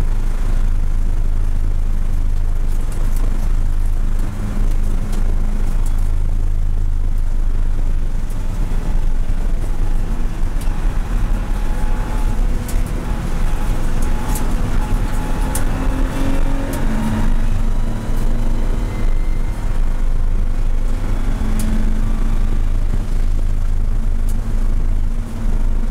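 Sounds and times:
race car engine at high revs: 0.0s - 25.9s
road and wind noise: 0.0s - 25.9s.

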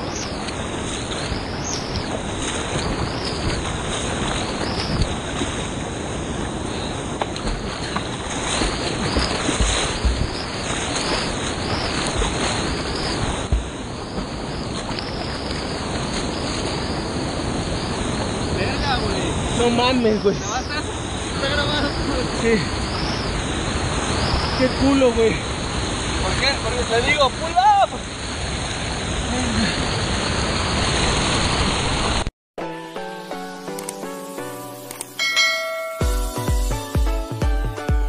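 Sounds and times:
whitewater roaring: 0.0s - 32.3s
low thumps on microphone: 9.1s - 10.4s, 13.2s - 14.3s.

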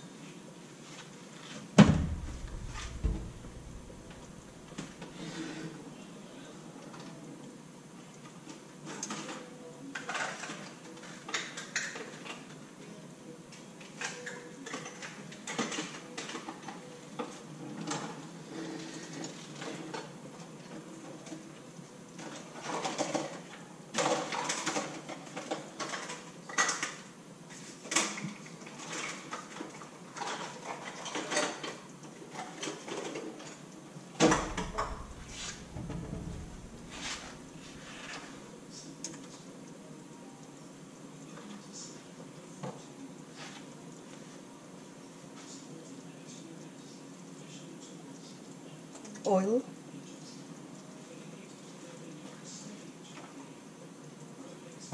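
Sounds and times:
loud thump: 1.8s - 4.9s, 34.2s - 37.8s
dishes and pots clattering: 34.2s - 38.4s.

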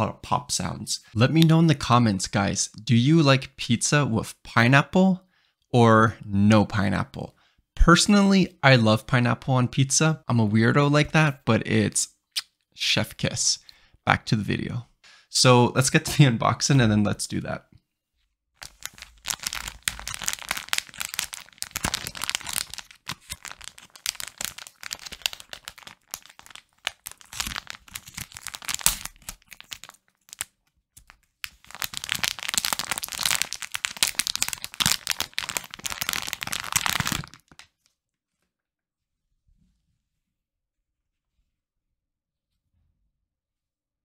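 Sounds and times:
packaging crinkling: 18.6s - 38.0s.

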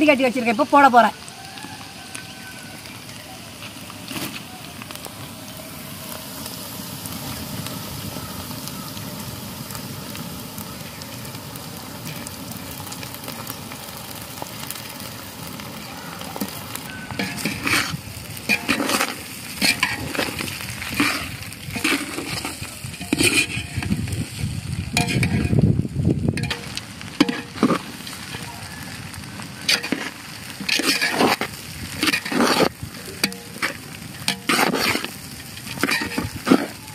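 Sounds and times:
food sizzling in a pot: 0.0s - 36.9s
metal ladle scraping a pot: 17.1s - 24.4s, 25.0s - 25.6s, 26.4s - 28.5s, 29.6s - 36.8s.

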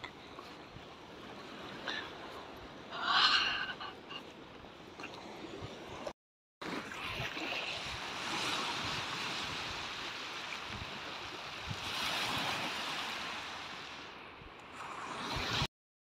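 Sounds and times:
waves washing onto pebbles: 6.6s - 14.1s.

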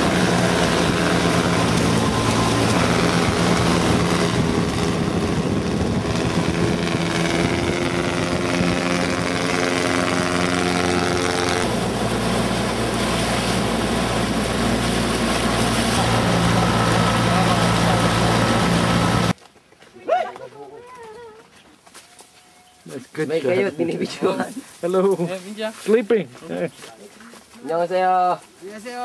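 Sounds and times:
boat engine running: 0.0s - 19.4s.

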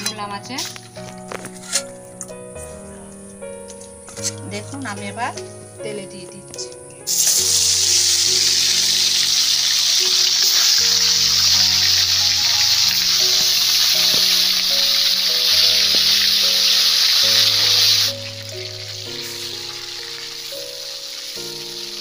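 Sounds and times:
fish sizzling in hot oil: 7.1s - 22.0s.

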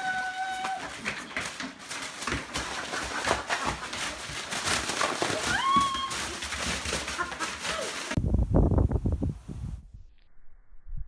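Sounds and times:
dog yowling: 0.0s - 1.0s
dog claws clicking on floor: 0.6s - 8.2s.

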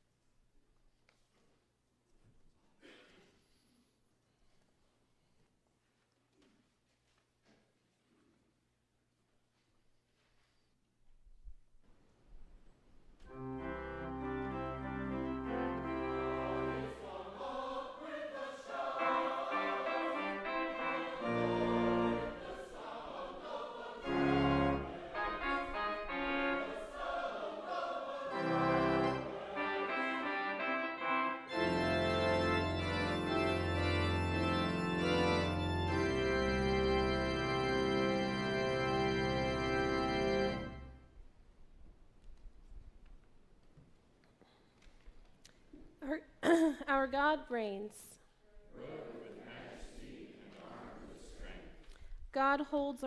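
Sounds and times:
church organ chords: 13.3s - 17.5s, 18.7s - 23.2s, 23.8s - 41.1s.

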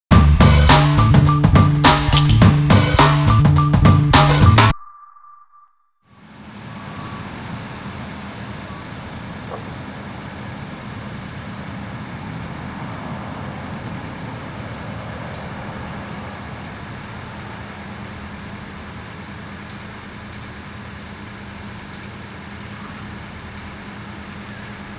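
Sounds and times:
jet engines rushing: 6.3s - 18.7s.

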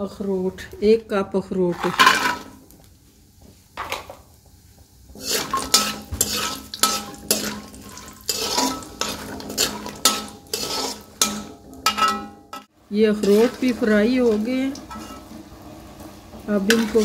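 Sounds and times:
spoon scraping a metal wok: 1.6s - 2.6s, 5.1s - 17.0s.

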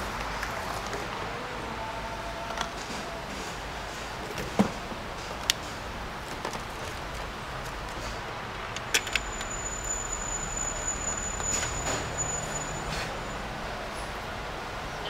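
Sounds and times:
shop hum: 0.0s - 15.0s
battery tester clicks and clacks: 8.6s - 9.5s
thin high whine: 9.1s - 13.5s.

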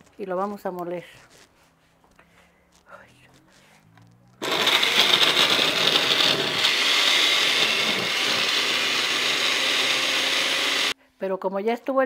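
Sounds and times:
blender running: 4.4s - 11.0s.

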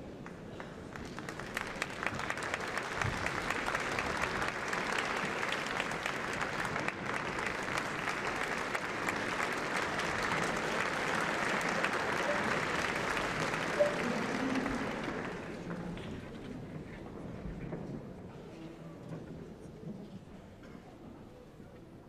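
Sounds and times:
audience applauding: 0.1s - 16.4s.

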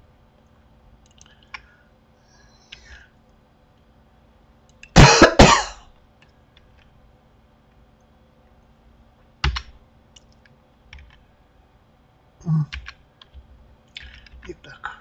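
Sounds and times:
keyboard keys and mouse clicking: 1.0s - 1.7s, 9.4s - 11.2s, 12.7s - 14.6s.

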